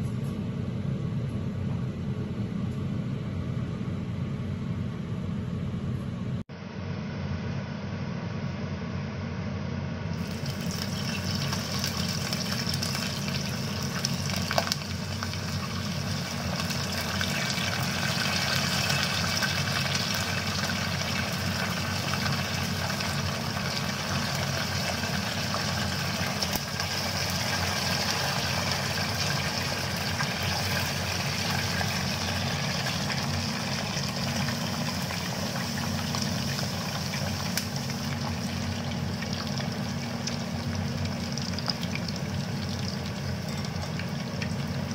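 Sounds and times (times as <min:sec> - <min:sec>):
low steady hum: 0:00.0 - 0:44.9
food sizzling in hot oil: 0:10.2 - 0:44.9.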